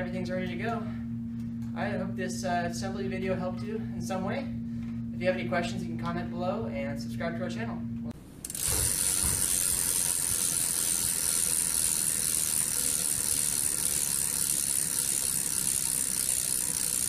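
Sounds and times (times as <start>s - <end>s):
bicycle freewheel ratcheting buzz: 8.3s - 17.0s.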